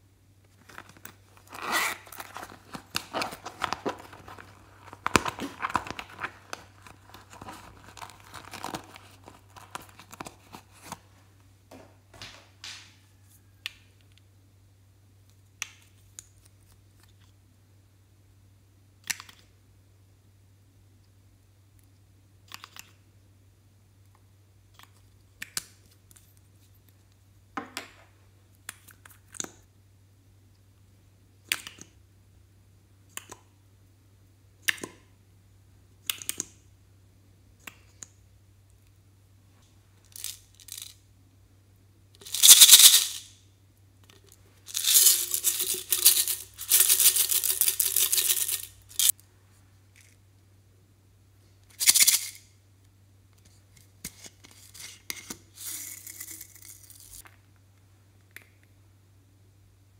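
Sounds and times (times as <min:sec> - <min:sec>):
beads rattling in a can: 0:40.0 - 0:41.0, 0:42.2 - 0:43.3, 0:44.6 - 0:49.1, 0:51.7 - 0:52.4, 0:55.5 - 0:57.3.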